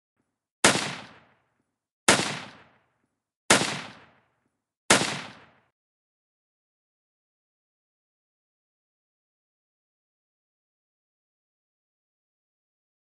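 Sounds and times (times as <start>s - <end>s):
rifle shots: 0.6s - 1.4s, 2.1s - 2.9s, 3.5s - 4.3s, 4.9s - 5.7s.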